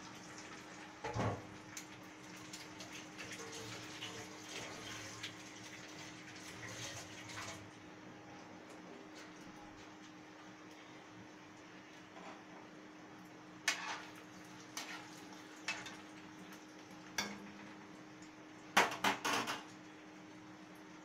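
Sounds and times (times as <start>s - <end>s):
metal ladle scraping a pan: 13.7s - 14.2s, 14.8s - 16.0s.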